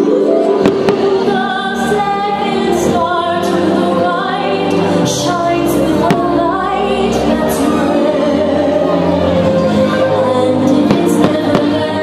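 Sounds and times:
choir music: 0.0 - 12.0
fireworks bangs: 0.6 - 1.5.

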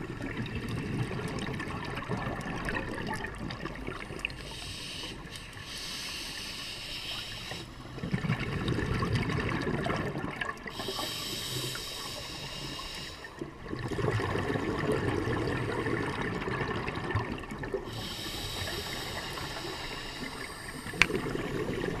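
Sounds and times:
exhaled bubbles burbling: 0.0 - 4.4, 8.0 - 10.9, 13.4 - 19.5, 20.7 - 22.0
regulator inhale hiss: 4.4 - 7.9, 10.7 - 13.4, 17.9 - 22.0.

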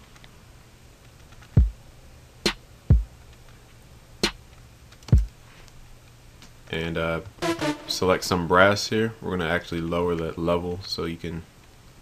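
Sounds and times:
sharp snare hits: 7.4 - 8.2.

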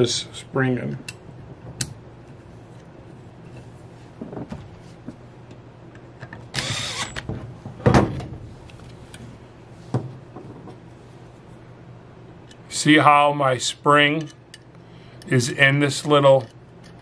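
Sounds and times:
cordless drill driving screw: 6.6 - 7.2.

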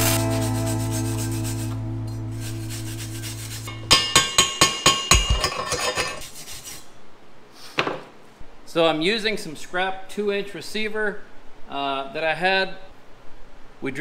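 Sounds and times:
background music: 0.0 - 3.7
sharp metal clanks ringing: 3.7 - 6.2.

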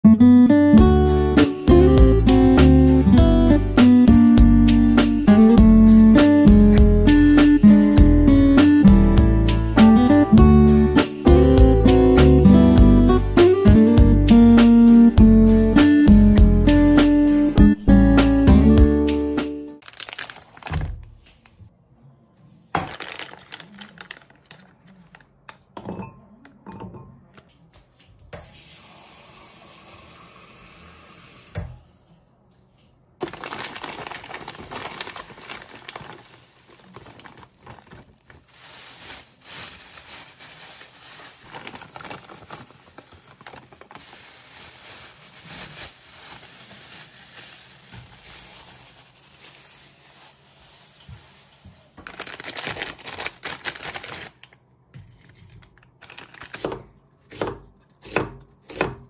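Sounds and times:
plastic packaging crinkling: 19.8 - 21.6, 22.7 - 25.6, 33.2 - 56.9.

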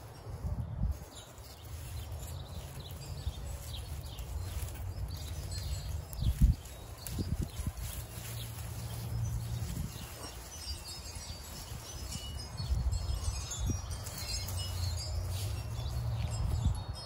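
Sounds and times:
twine rustling on vines: 0.0 - 17.0
small birds chirping: 1.0 - 17.0.

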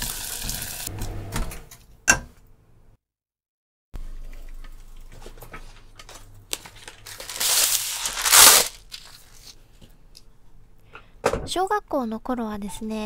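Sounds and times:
baking paper rustling: 5.6 - 9.7
paper tearing: 6.8 - 9.6.

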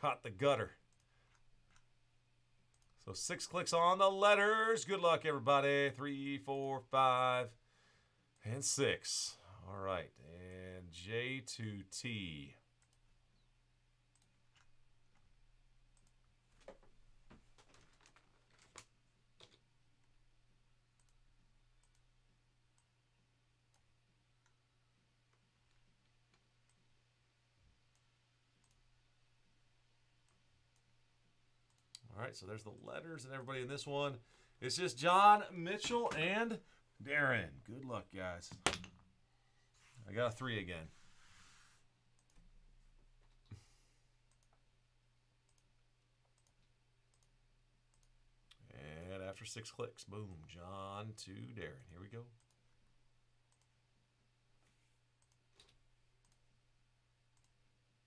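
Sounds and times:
faint low hum: 0.0 - 58.0
faint computer mouse clicks: 46.3 - 47.3.

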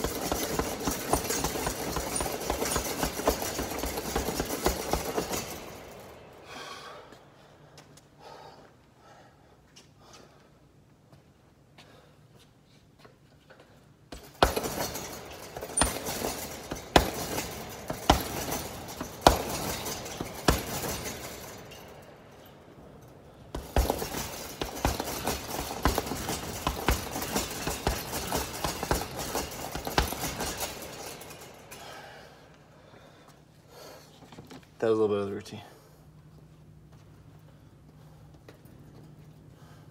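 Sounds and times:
punches on heavy bag: 14.1 - 21.6, 23.5 - 31.2
chains clinking: 14.2 - 32.0.

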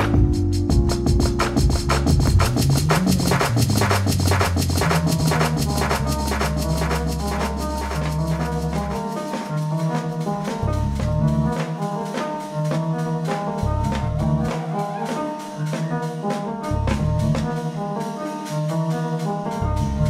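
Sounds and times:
electric bass: 0.0 - 9.0, 10.3 - 11.6, 13.6 - 14.5, 16.7 - 17.6, 19.6 - 20.0
drum kit hits: 0.0 - 17.6
keyboard chords: 0.0 - 20.0.

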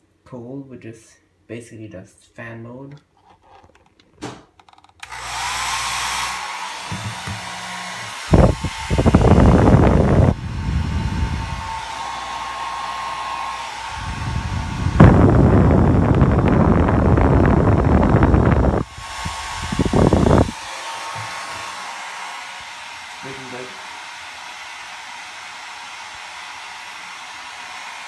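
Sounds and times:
hair dryer motor whine: 5.0 - 28.0
airflow rumbling on microphone: 8.3 - 12.0, 13.8 - 20.6.

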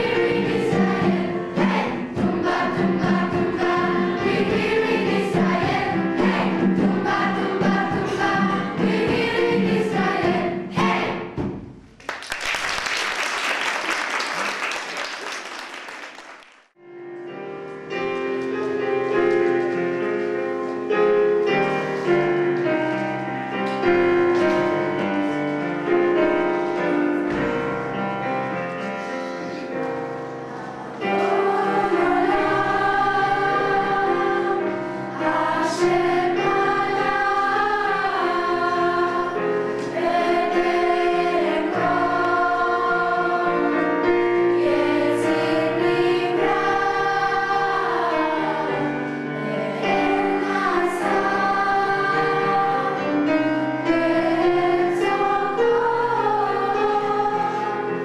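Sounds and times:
children's choir singing: 0.0 - 11.4, 18.0 - 58.0
applause: 12.0 - 16.8.

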